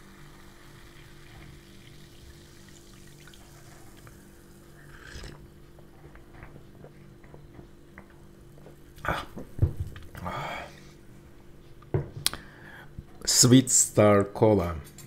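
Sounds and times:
soda fizzing and popping: 0.0s - 5.4s
cola pouring into a glass: 0.0s - 5.6s
low steady hum: 0.0s - 15.0s.

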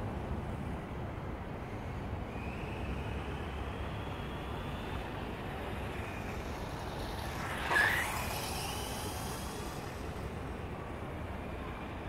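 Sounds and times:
toy motorcycle motor whine: 3.2s - 10.6s.

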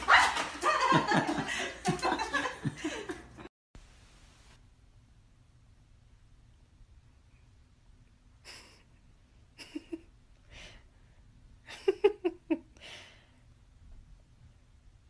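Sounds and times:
person chuckling: 0.6s - 3.5s, 8.4s - 9.0s, 9.6s - 10.1s.

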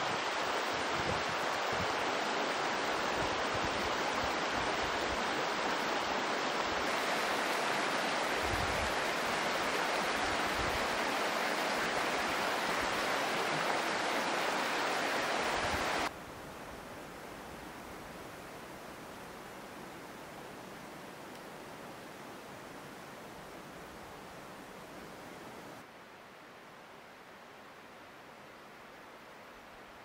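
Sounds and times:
river rushing over rapids: 0.0s - 16.1s.

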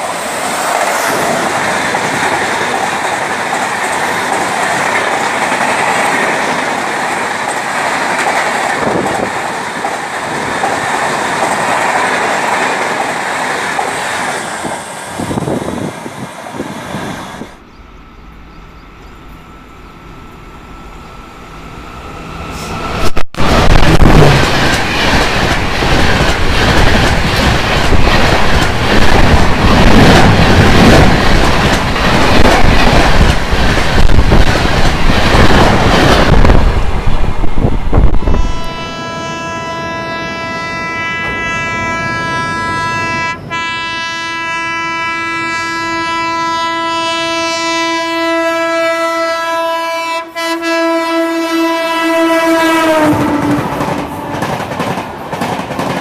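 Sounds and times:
train rushing past: 0.0s - 44.2s, 47.1s - 56.0s
train horn long blast: 38.0s - 54.4s.

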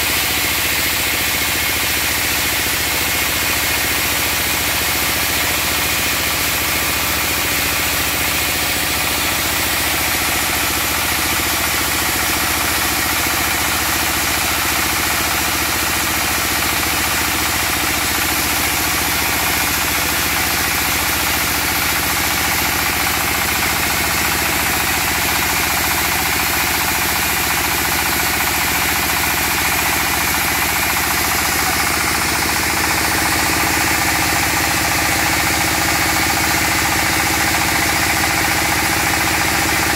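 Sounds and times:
diesel engine running: 16.6s - 39.9s.

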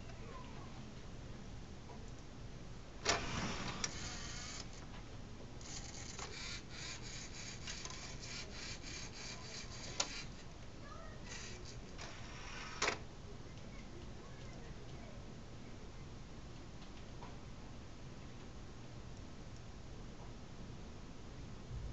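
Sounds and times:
motors and plastic gears whirring: 3.0s - 4.8s, 5.6s - 10.5s, 11.2s - 13.0s.

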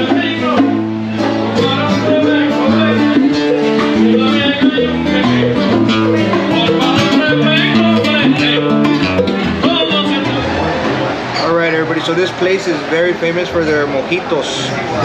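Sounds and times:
man singing: 0.0s - 10.6s
bongos: 0.0s - 11.4s
acoustic guitar: 0.0s - 15.0s.

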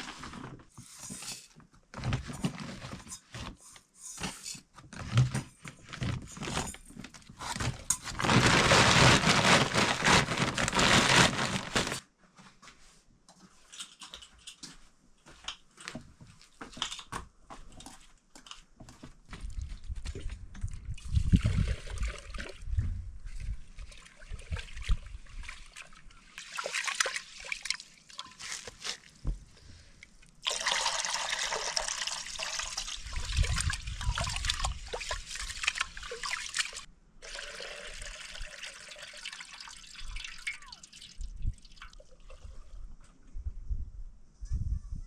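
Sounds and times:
water pouring and splashing: 7.4s - 12.0s, 20.9s - 29.2s, 30.4s - 43.0s.

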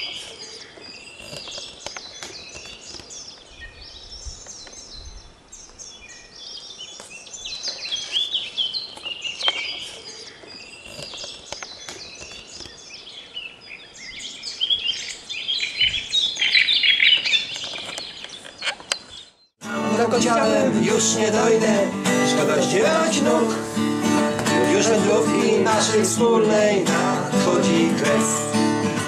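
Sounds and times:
songbirds chirping and trilling: 0.0s - 29.0s.

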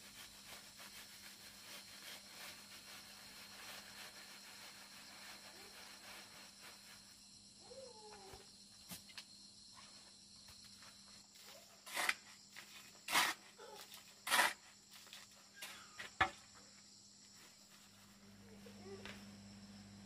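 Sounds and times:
insect buzz: 0.0s - 20.0s
shovel scraping gravelly soil: 11.4s - 16.0s.

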